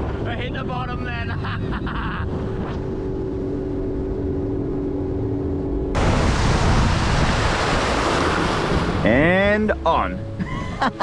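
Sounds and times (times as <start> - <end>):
jet ski engine humming: 0.0 - 11.0
rush of spray and wind: 5.9 - 9.7.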